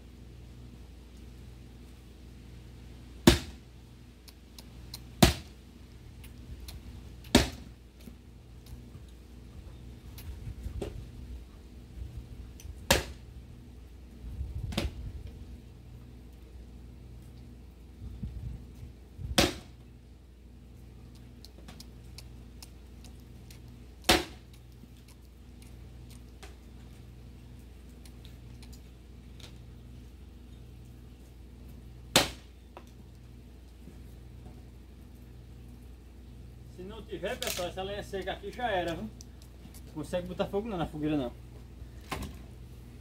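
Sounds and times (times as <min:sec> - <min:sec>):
axe chopping into log: 0:03.2 - 0:03.6, 0:05.2 - 0:05.5, 0:07.3 - 0:07.7, 0:12.9 - 0:13.2, 0:19.4 - 0:19.7, 0:24.1 - 0:24.4, 0:32.1 - 0:32.5.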